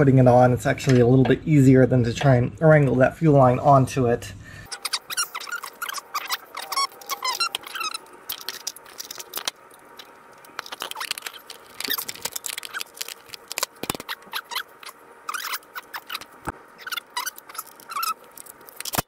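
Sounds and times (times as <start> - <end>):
short squeaks: 4.7 - 8.7, 14.0 - 18.2.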